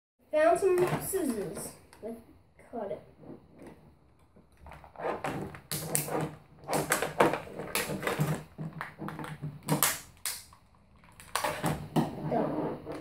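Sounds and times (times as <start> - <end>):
plastic packaging crackling: 4.5 - 11.7.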